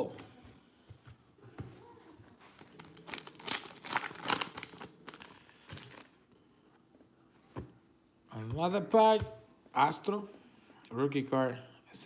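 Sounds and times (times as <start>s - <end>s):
foil wrapper crinkling and tearing: 2.6s - 6.2s.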